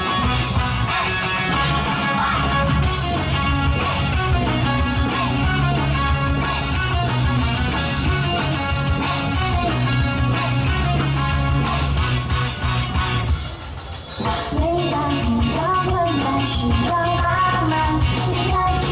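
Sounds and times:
pop-rock music over sound system: 0.0s - 18.9s.

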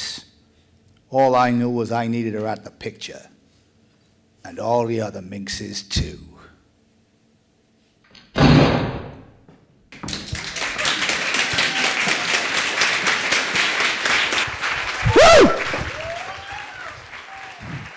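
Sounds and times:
gunshot: 8.4s - 9.3s
audience applause: 10.0s - 17.9s
loud whoop: 11.5s - 12.5s, 15.0s - 17.9s.

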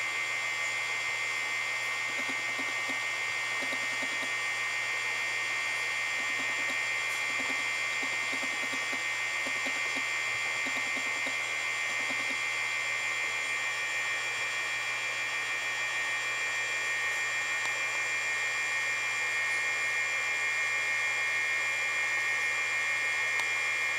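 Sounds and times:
high-pitched insect drone: 2.1s - 4.4s, 5.8s - 12.6s.

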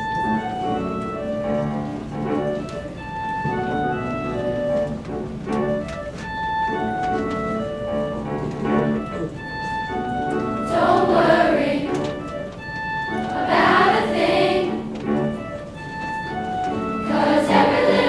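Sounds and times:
piano chords: 0.0s - 18.0s
children's choir singing: 10.6s - 12.3s, 13.1s - 15.2s, 17.0s - 18.0s.

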